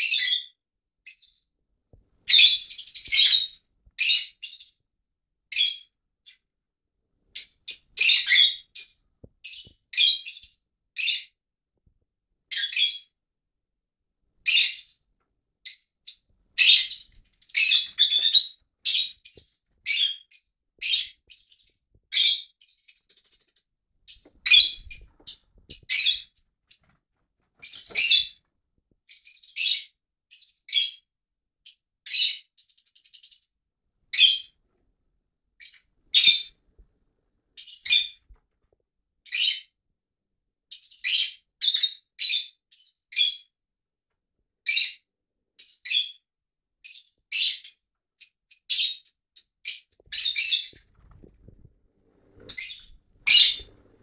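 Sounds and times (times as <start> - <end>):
lovebirds chirping: 2.2 - 4.8, 7.3 - 11.4, 14.4 - 15.0, 15.6 - 26.9, 27.6 - 28.4, 35.6 - 36.6, 37.6 - 38.3, 46.8 - 54.0.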